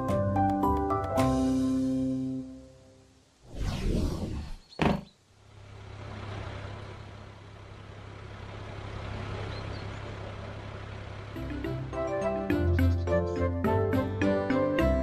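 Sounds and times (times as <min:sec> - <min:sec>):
cartoon whoosh: 0:03.4 - 0:04.7
cartoon truck engine humming: 0:04.8 - 0:15.0.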